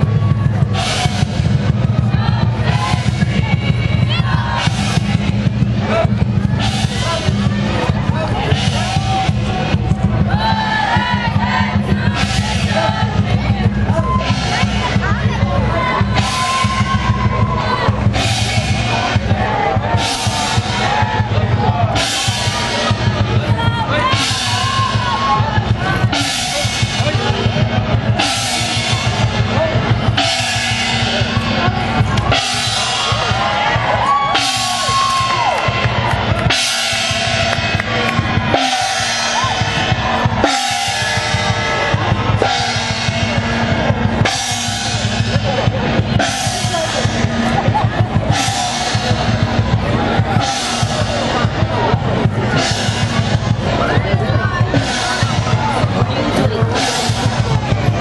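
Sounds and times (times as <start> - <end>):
drum beating steadily: 0.0 - 58.0
cymbal and gong crashes: 36.5 - 45.4.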